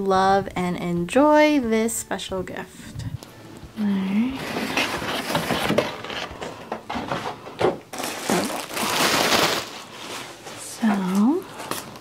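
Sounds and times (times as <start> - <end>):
bubble wrap rustling and crinkling: 4.0 - 12.0.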